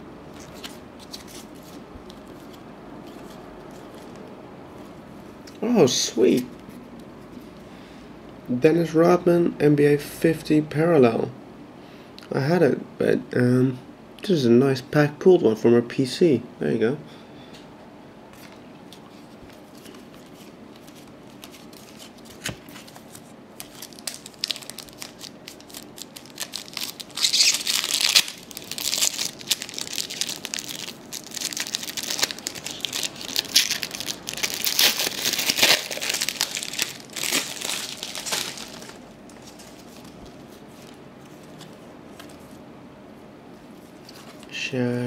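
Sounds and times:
foil wrapper crinkling and tearing: 20.8 - 40.2.

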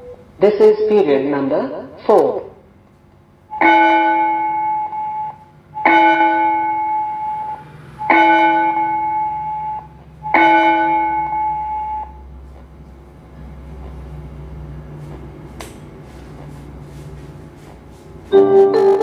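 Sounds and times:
school bell tone through speaker: 3.6 - 5.3, 5.9 - 9.8, 10.4 - 12.2.

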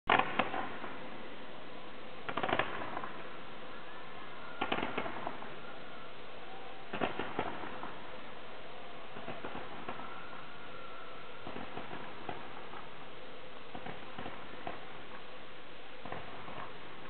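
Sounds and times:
distant fireworks popping and crackling: 0.1 - 1.4, 2.2 - 3.4, 4.6 - 5.6, 6.9 - 8.3, 9.1 - 10.5, 11.4 - 15.4, 16.0 - 17.0
steady hiss: 0.1 - 17.0.

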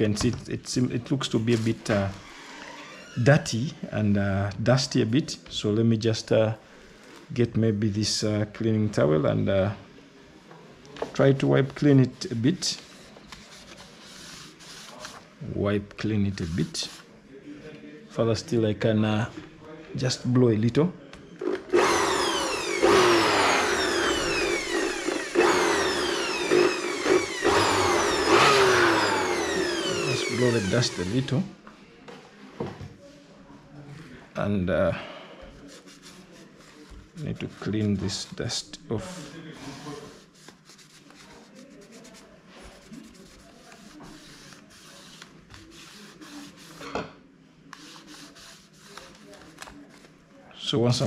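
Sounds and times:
cloth rubbing on laptop: 12.2 - 15.3, 35.6 - 38.4, 39.0 - 46.9, 47.7 - 50.2
electric blower whine: 21.7 - 31.3.

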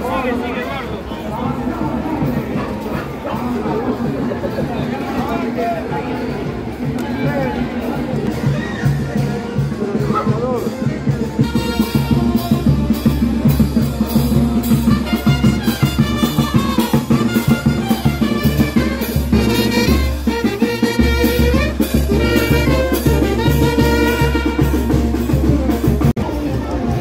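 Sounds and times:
upbeat music with drums and bass: 8.2 - 27.0.

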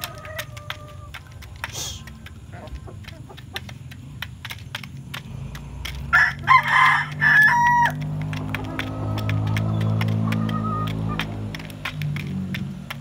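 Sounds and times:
rooster crowing: 0.0 - 1.2, 6.1 - 8.2
chickens pecking feed in metal trough: 0.0 - 13.0.

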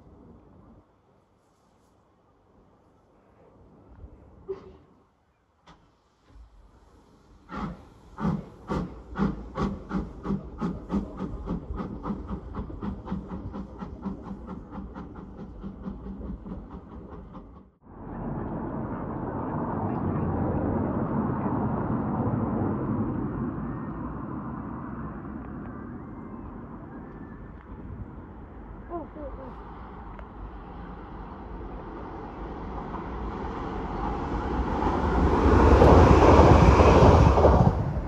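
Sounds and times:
steam locomotive exhaust chuffs: 5.6 - 17.8
passing electric train rushing: 5.6 - 38.0.

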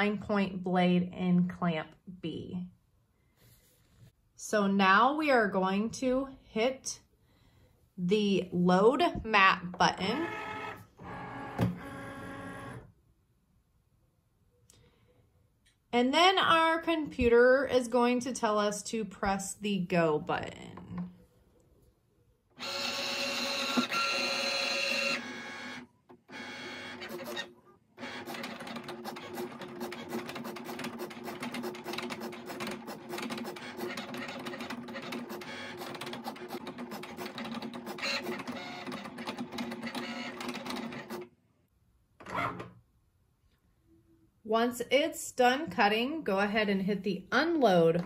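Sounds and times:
cutting machine motors whirring: 22.6 - 28.5.

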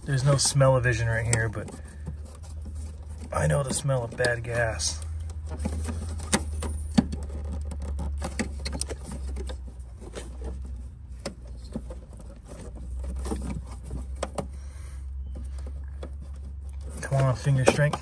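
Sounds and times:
plastic clips clicking and scraping: 0.0 - 10.6, 15.3 - 18.0.

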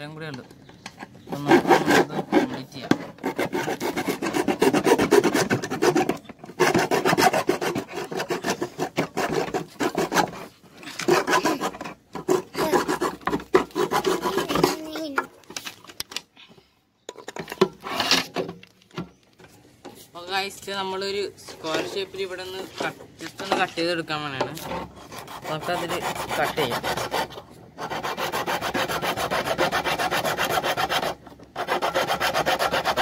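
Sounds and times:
hand saw rasping through plastic: 0.9 - 15.3, 24.4 - 33.0.

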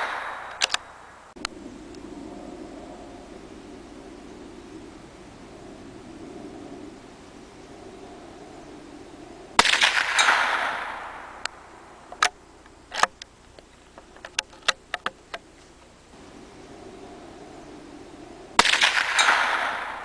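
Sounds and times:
rifle shot: 0.0 - 1.1, 9.6 - 12.3, 18.6 - 20.0
rifle bolt clicking: 0.5 - 0.9.

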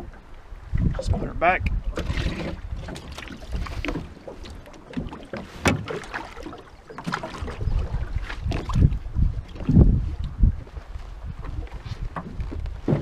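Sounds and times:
wind rumbling on microphone: 0.0 - 13.0
knocks in aluminium boat: 1.9 - 9.9, 11.4 - 13.0.

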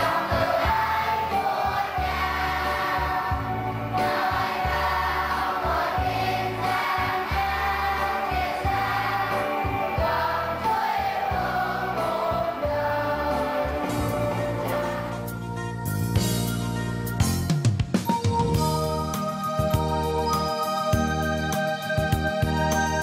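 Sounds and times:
children's choir singing a hymn: 0.0 - 15.3
low instrumental accompaniment: 0.0 - 23.0.

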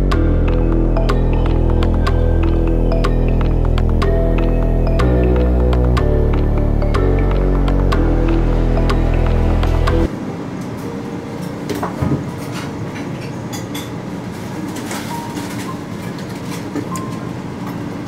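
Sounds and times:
background music: 0.0 - 12.6
restaurant room noise: 0.4 - 18.0
dishes and glassware clinking: 12.1 - 14.0.

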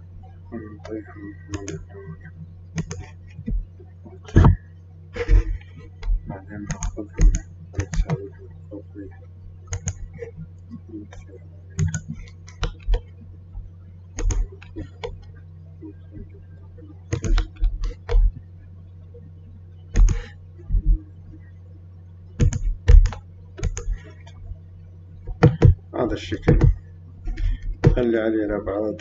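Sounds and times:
steady low hum: 0.0 - 29.0
keyboard key presses: 0.8 - 1.8, 2.8 - 3.6, 5.2 - 8.3, 9.7 - 10.3, 11.8 - 13.1, 14.2 - 15.2, 17.1 - 18.3, 19.9 - 21.0, 22.4 - 24.1, 25.3 - 25.8
mouse clicks: 2.8 - 3.1, 9.7 - 10.2, 11.8 - 13.1, 14.2 - 15.3, 17.1 - 18.3, 19.9 - 20.8, 22.4 - 24.4.

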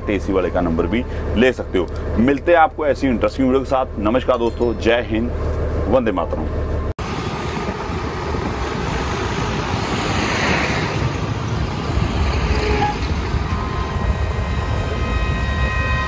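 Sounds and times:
heavy truck driving: 0.0 - 16.0
passing traffic: 0.0 - 16.0
wind on microphone: 7.0 - 16.0.

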